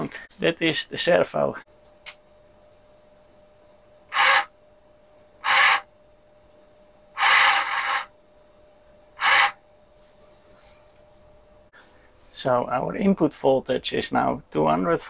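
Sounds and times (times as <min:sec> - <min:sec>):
servo motor running: 0:04.1 - 0:04.5, 0:05.4 - 0:05.9, 0:07.2 - 0:08.1, 0:09.2 - 0:09.6.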